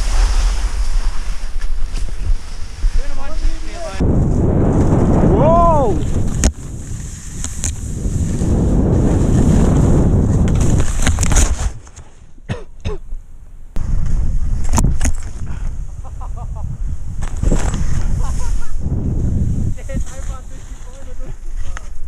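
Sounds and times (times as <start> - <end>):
wind buffeting microphone: 0.0 - 11.8, 13.8 - 22.0
knocks from skis and snow: 9.1 - 12.0.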